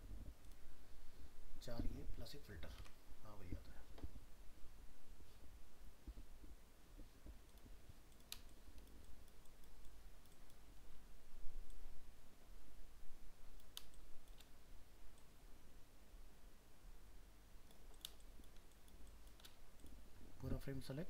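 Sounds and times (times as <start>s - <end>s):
low steady hum: 0.0s - 21.0s
computer mouse clicks: 7.2s - 10.8s, 11.6s - 11.9s, 13.5s - 15.4s, 17.6s - 20.0s.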